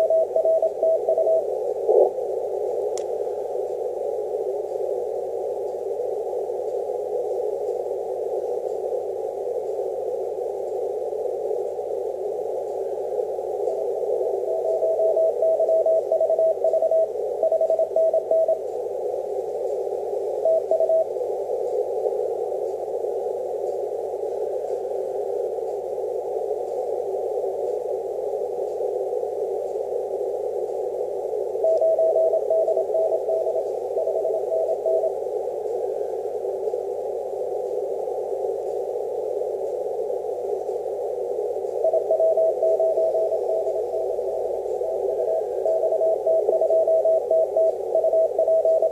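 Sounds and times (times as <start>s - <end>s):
morse code tone: 0.0s - 2.0s, 14.5s - 18.6s, 31.6s - 35.2s, 41.8s - 44.2s, 44.9s - 48.9s
radio band hiss: 0.0s - 48.9s.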